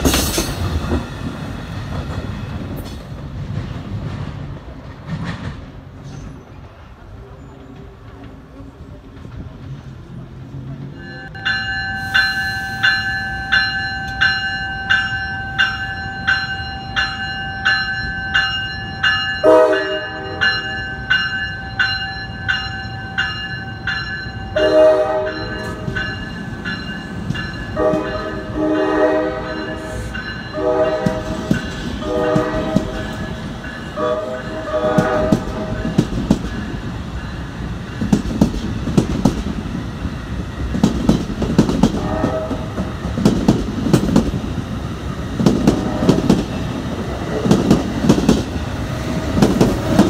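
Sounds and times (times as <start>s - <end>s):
train rumble: 0.0s - 50.0s
train bell ringing: 10.9s - 35.0s, 35.6s - 38.3s
train horn blasts: 19.4s - 20.6s, 24.5s - 25.9s, 27.7s - 33.3s, 33.9s - 36.0s, 41.9s - 42.8s, 45.7s - 46.4s.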